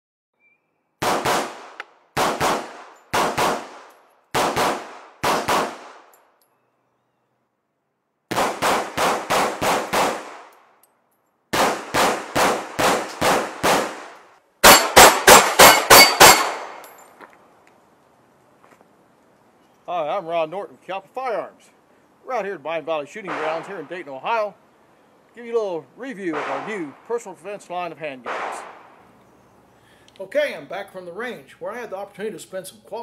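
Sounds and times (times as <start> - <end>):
pistol shots: 1.0 - 6.1, 8.3 - 10.6, 11.5 - 16.8, 23.2 - 24.0, 26.3 - 27.1, 28.2 - 29.0
metallic clang of steel plates: 15.6 - 17.1.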